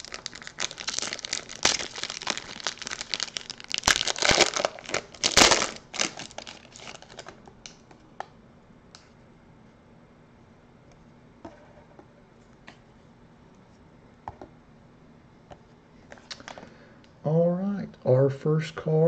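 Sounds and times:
foil wrapper crinkling and tearing: 0.0 - 7.4.

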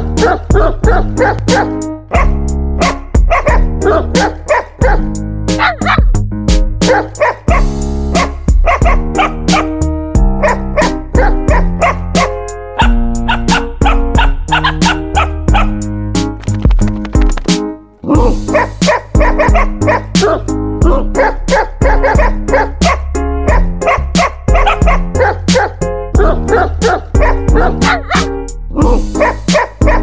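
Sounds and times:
music with steady beat: 0.0 - 30.0
dog barks and yips: 0.2 - 5.0, 5.6 - 6.0, 6.9 - 9.7, 10.4 - 15.7, 18.5 - 28.3, 29.1 - 30.0.

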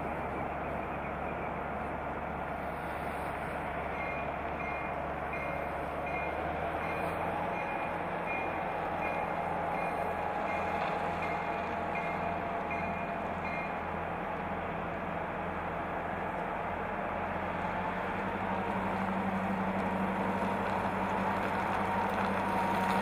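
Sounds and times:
diesel locomotive engine drone: 0.0 - 23.0.

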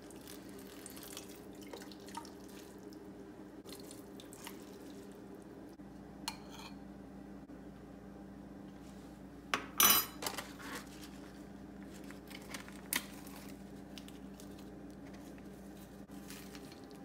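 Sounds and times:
steady low hum: 0.0 - 17.0
bowls and cutlery clinking: 9.6 - 10.5.

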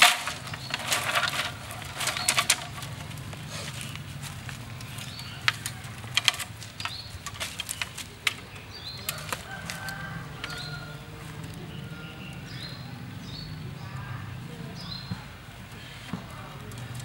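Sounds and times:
bamboo strips clicking: 0.0 - 10.8.

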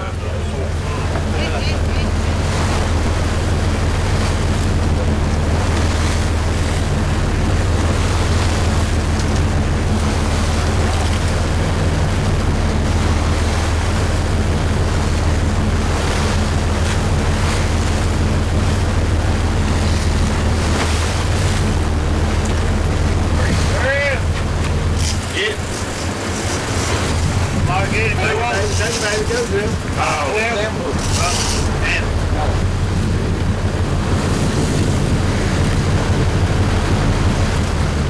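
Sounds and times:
boat engines droning: 0.0 - 38.0
rush of boat wake: 0.0 - 38.0
wind buffeting microphone: 0.0 - 38.0.

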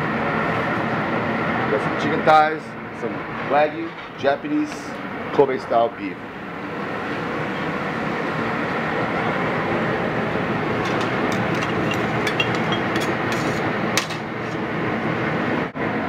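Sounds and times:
rushing kitchen noise: 6.7 - 15.0
skewers clicking on grill rails: 10.8 - 14.6.

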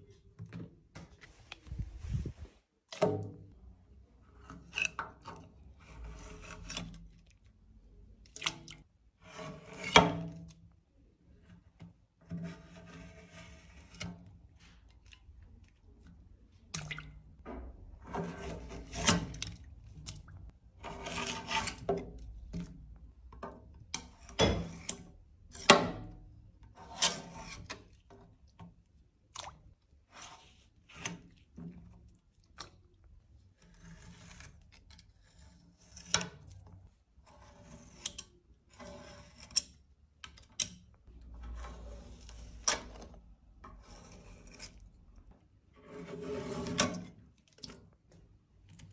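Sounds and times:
metal scraper scraping wax: 4.4 - 7.2, 9.2 - 10.4, 12.2 - 14.3, 18.1 - 19.6, 20.8 - 22.2, 26.7 - 27.9, 33.6 - 36.5, 37.2 - 39.8, 41.4 - 45.0, 45.8 - 47.2.

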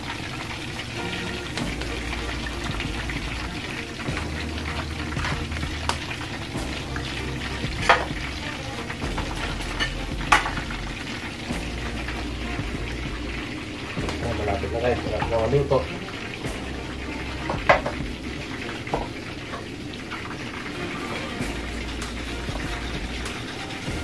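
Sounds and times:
chicken deep-frying in oil: 0.0 - 24.0
sauce sizzling in wok: 0.0 - 24.0
spatula scraping pan: 1.0 - 13.4
spatula knocking on pan: 7.7 - 8.4, 9.0 - 10.8, 17.5 - 18.2.

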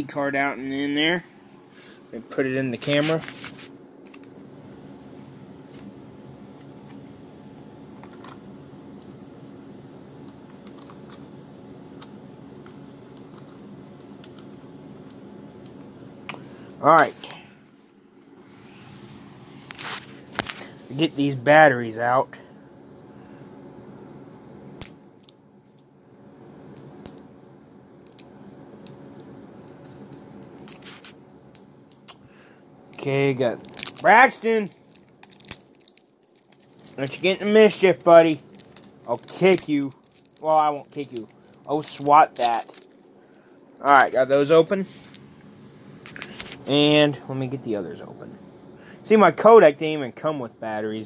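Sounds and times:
steady low hum: 0.0 - 51.0
plastic packaging clicks and snips: 34.7 - 43.0.

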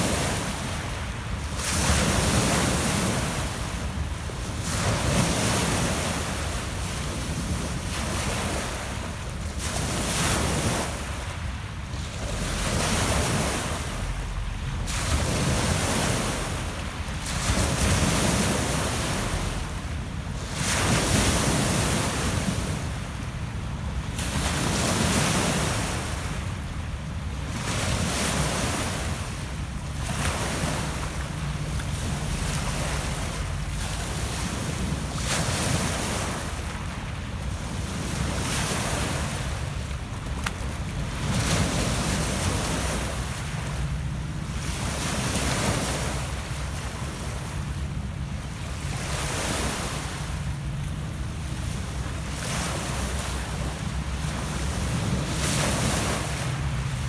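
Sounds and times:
waves washing over pebble beach: 11.9 - 23.2.

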